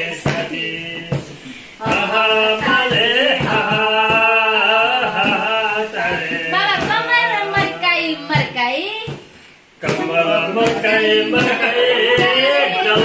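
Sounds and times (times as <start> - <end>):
man singing: 0.0 - 6.9, 9.8 - 13.0.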